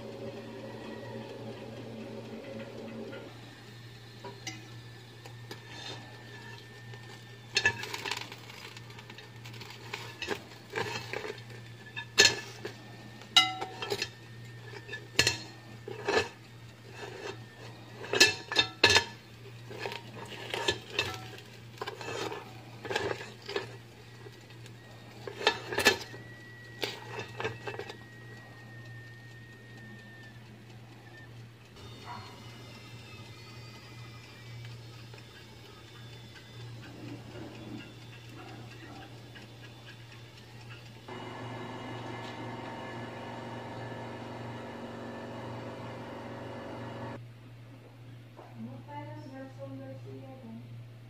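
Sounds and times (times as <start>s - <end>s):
steady low hum: 0.0s - 51.0s
fork scraping and clinking: 13.4s - 23.8s.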